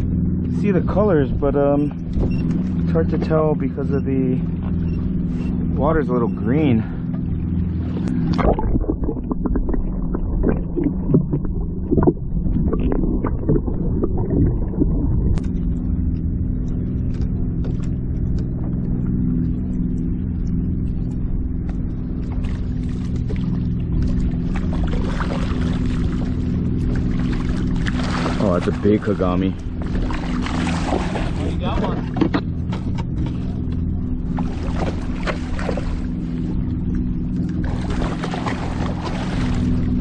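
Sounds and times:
low hum: 0.0s - 40.0s
fish thrashing and splashing water: 22.3s - 29.2s, 29.8s - 32.1s, 34.3s - 36.5s, 37.5s - 40.0s.

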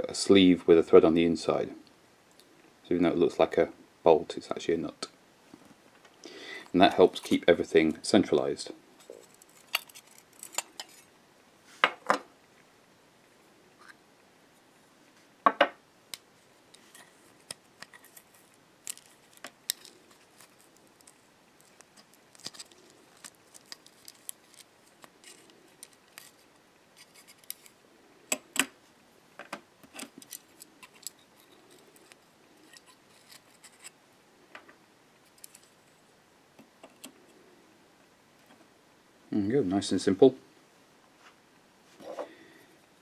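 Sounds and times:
small metal parts clicking: 29.9s - 33.9s.

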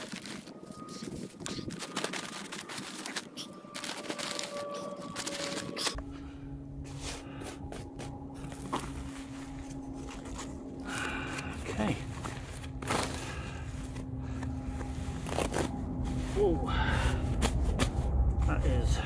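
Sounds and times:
plastic sack crinkling: 0.0s - 6.0s
steady low hum: 0.0s - 19.0s.

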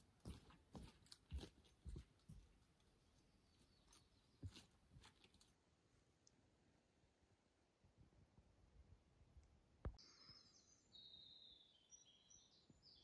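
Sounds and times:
faint footsteps on rocky trail: 0.0s - 5.7s.

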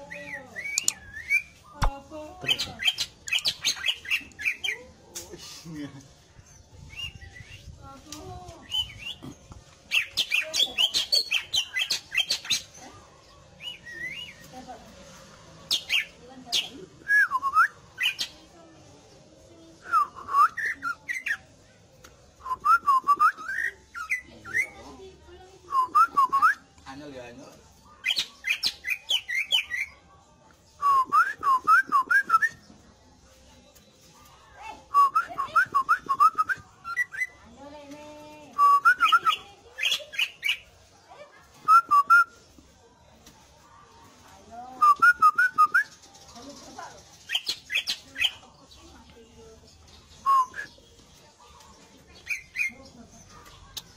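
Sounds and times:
bird singing whistled notes: 0.0s - 1.8s, 2.4s - 4.8s, 6.7s - 7.8s, 8.6s - 9.3s, 9.9s - 12.7s, 13.6s - 14.5s, 15.7s - 18.4s, 19.8s - 21.4s, 22.4s - 25.0s, 25.7s - 26.7s, 28.0s - 30.0s, 30.8s - 32.7s, 34.8s - 37.4s, 38.5s - 40.7s, 41.6s - 42.6s, 44.7s - 46.1s, 47.2s - 48.4s, 50.1s - 51.0s, 52.2s - 53.0s.

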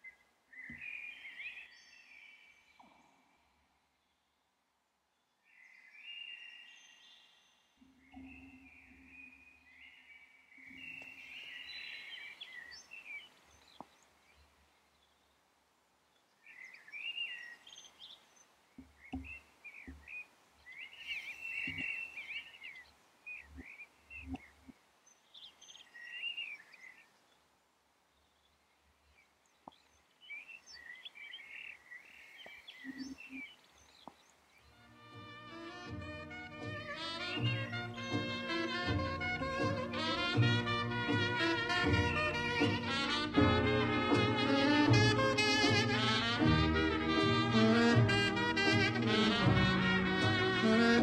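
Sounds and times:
birds twittering: 0.0s - 3.1s, 5.2s - 15.4s, 16.1s - 27.4s, 28.1s - 36.0s, 36.6s - 39.0s.

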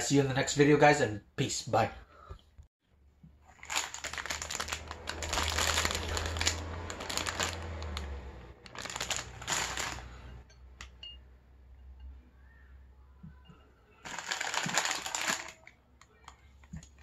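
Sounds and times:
plastic wrapper crinkling: 3.4s - 10.4s, 14.0s - 17.0s.

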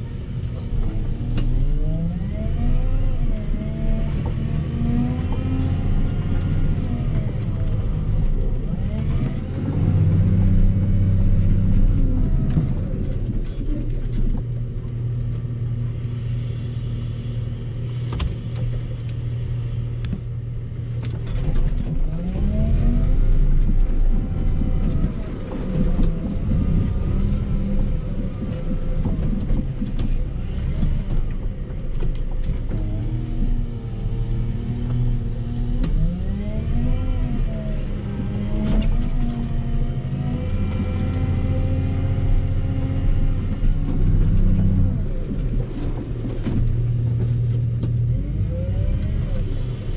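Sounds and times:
loader diesel engine revving: 0.8s - 12.6s, 32.4s - 45.4s.

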